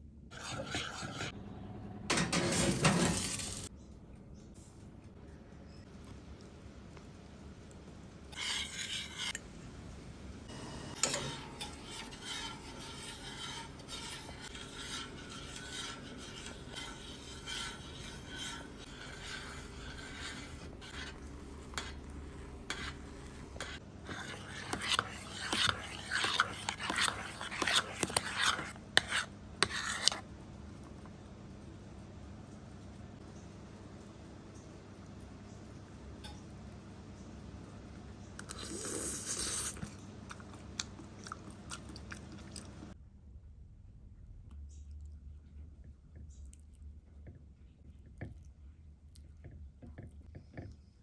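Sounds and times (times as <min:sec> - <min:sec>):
utensils scraping and clinking on a bowl: 0:00.3 - 0:01.4, 0:02.2 - 0:03.7, 0:08.3 - 0:09.4, 0:10.9 - 0:30.2.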